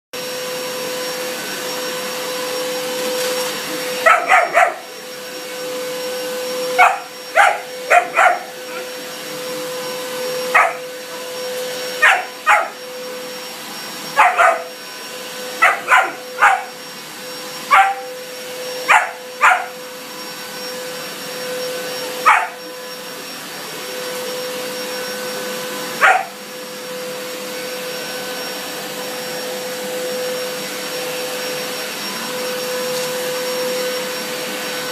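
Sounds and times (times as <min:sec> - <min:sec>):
vacuum cleaner running: 0:00.2 - 0:34.9
puppy barking: 0:04.0 - 0:04.9, 0:06.7 - 0:08.9, 0:10.5 - 0:10.9, 0:12.0 - 0:12.8, 0:14.1 - 0:14.8, 0:15.6 - 0:16.8, 0:17.7 - 0:18.2, 0:18.8 - 0:19.8, 0:22.2 - 0:22.6, 0:26.0 - 0:26.4.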